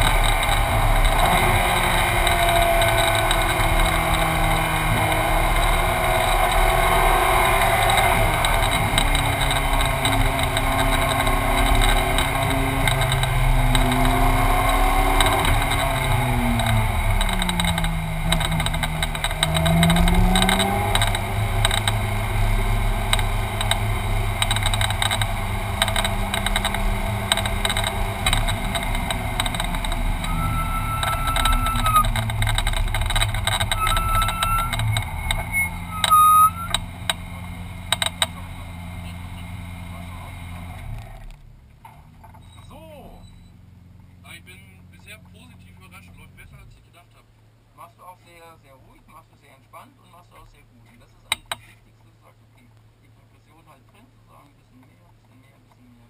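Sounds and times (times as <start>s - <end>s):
car engine at low revs: 0.0s - 56.0s
steady rumble and hiss: 42.7s - 56.0s.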